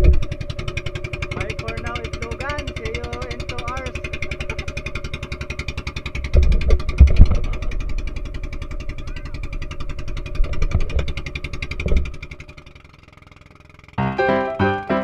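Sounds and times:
low thumps: 0.0s - 12.4s
boat engine puttering: 0.0s - 15.0s.

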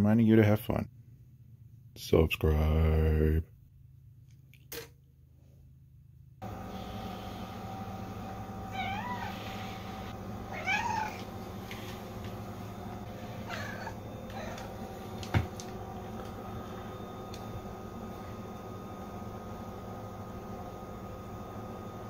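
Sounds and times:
steady background hum: 5.2s - 22.0s
cat meowing: 8.7s - 9.7s, 10.5s - 11.3s, 13.4s - 14.7s.

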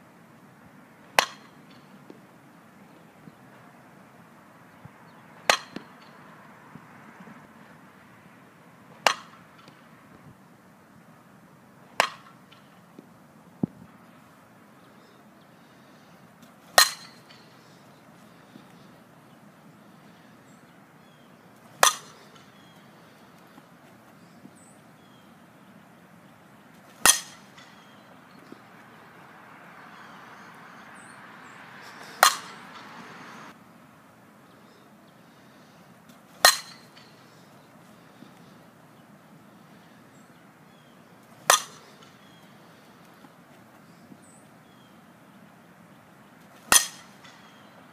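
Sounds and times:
bat hitting ball ping: 1.2s - 1.8s, 5.4s - 6.2s, 9.0s - 9.7s, 12.0s - 12.6s, 16.7s - 17.4s, 21.8s - 22.5s, 27.0s - 28.0s, 32.0s - 33.0s, 36.4s - 37.1s, 41.4s - 42.2s, 46.7s - 47.6s.

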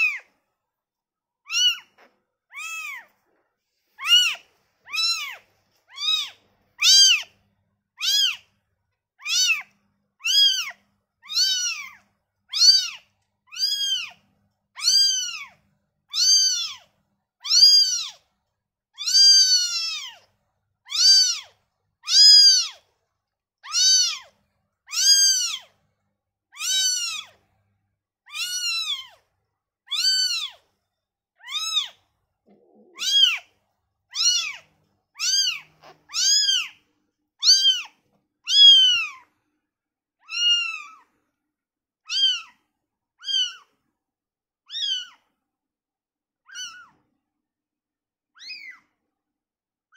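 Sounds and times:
kitten mewing: 1.5s - 3.1s, 4.0s - 7.3s, 19.0s - 20.3s, 26.5s - 27.4s, 28.3s - 29.2s, 31.4s - 36.8s, 37.4s - 39.2s, 40.2s - 41.0s, 42.1s - 42.6s.

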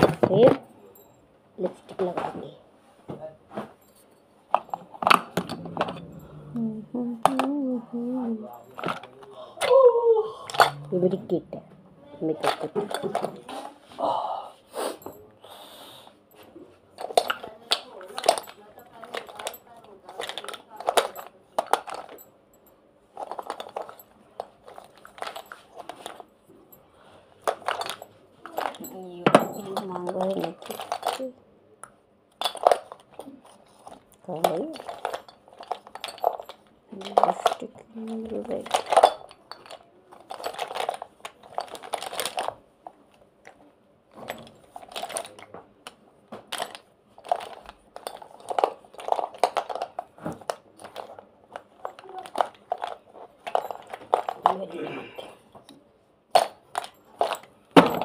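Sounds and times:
plastic cases clicking and rattling: 12.4s - 13.5s, 27.4s - 31.3s, 32.4s - 42.6s, 44.1s - 54.6s.

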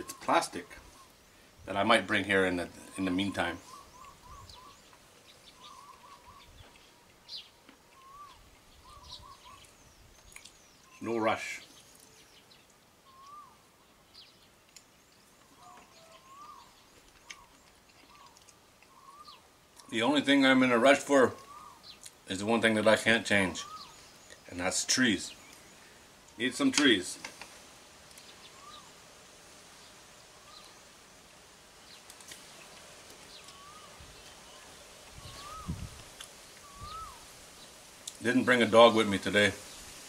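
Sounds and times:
bird whistling notes: 3.6s - 4.8s, 8.0s - 9.7s, 13.1s - 13.6s, 18.9s - 19.4s, 23.6s - 24.0s, 33.4s - 34.0s, 35.2s - 35.8s, 36.6s - 37.2s
high bird chirps: 3.6s - 11.0s, 13.1s - 13.6s, 15.5s - 19.9s, 33.3s - 35.9s, 36.5s - 37.3s
bird whistle: 13.1s - 13.6s, 35.2s - 35.8s, 36.6s - 37.2s
breeze hiss: 19.9s - 40.0s.

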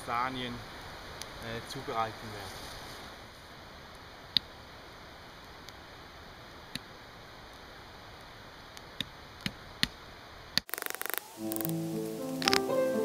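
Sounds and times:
faint steady hiss: 0.0s - 13.0s
wooden sticks clicking: 10.6s - 11.7s, 12.4s - 12.7s.

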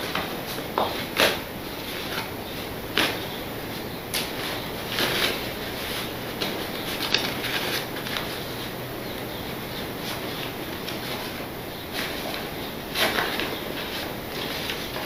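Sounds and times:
low background hum: 0.0s - 15.0s
paper rustling and crinkling: 4.2s - 8.7s, 10.0s - 15.0s.

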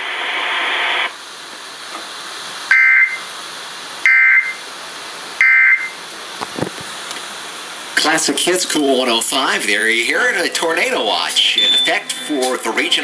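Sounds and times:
radio hiss: 0.0s - 13.0s
two-tone digital screeches: 11.6s - 12.0s.

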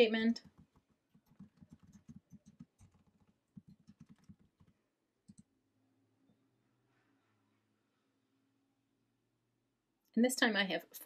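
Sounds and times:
typing on computer keyboard: 0.4s - 5.5s.

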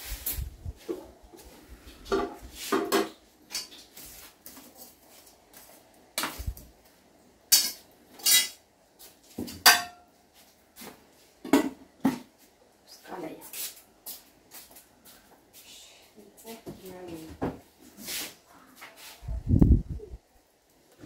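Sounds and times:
metal pots and utensils clattering: 2.0s - 4.0s, 7.5s - 8.6s, 9.4s - 10.1s.

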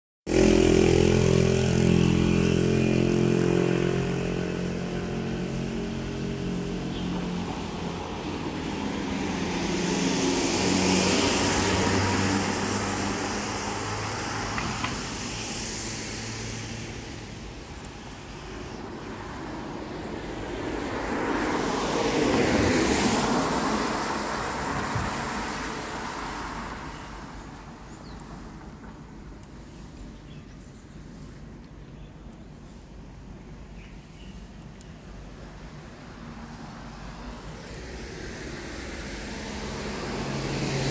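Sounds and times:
vehicle engine humming: 0.3s - 30.2s
vehicles passing: 0.3s - 40.9s.

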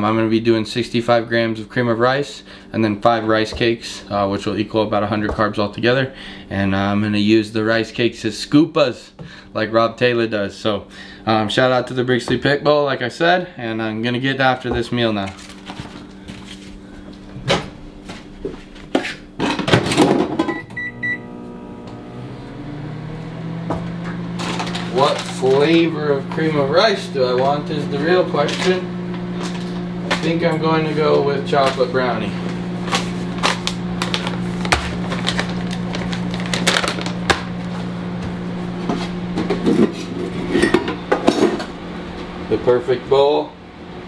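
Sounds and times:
microwave humming: 0.0s - 44.0s
microwave keypad beeps: 20.5s - 21.3s.

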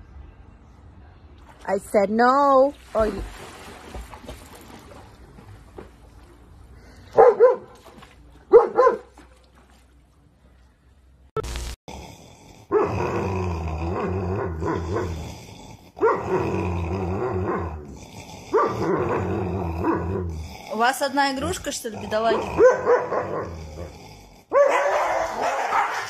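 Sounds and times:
dog barking: 7.1s - 7.8s, 8.5s - 9.2s, 16.0s - 16.3s, 18.6s - 18.8s, 22.6s - 23.4s, 24.5s - 26.0s
dogs play-growling: 21.8s - 24.6s.

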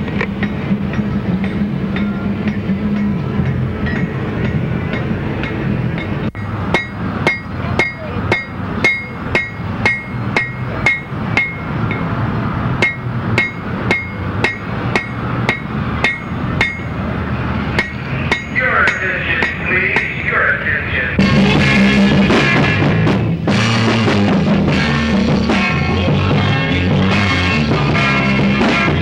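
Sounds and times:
hammer striking iron on anvil: 0.0s - 12.1s, 12.8s - 17.1s, 17.7s - 20.2s.

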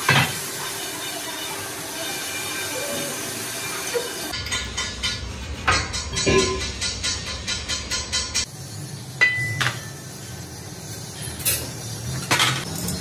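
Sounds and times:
metal rim clanking on machine: 4.3s - 8.5s.

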